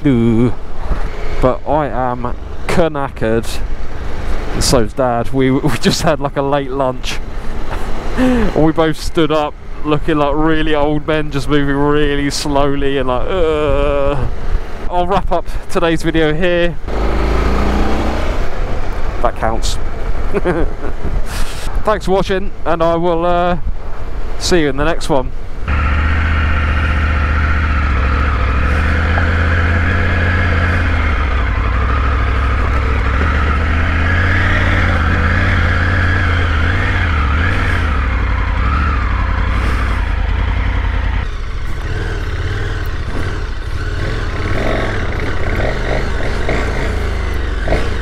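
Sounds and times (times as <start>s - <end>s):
motorcycle engine running: 25.7s - 48.0s.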